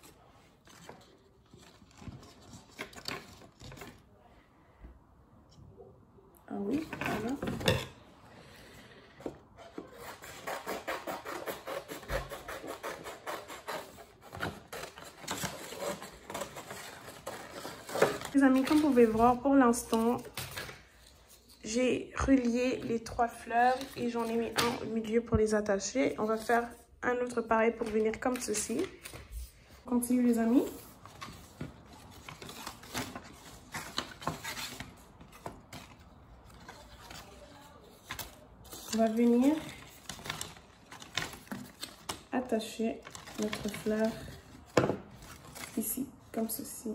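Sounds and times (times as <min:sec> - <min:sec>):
paper strips rustling: 0:00.0 - 0:04.0, 0:30.4 - 0:46.0
scissors snipping paper: 0:09.8 - 0:19.0.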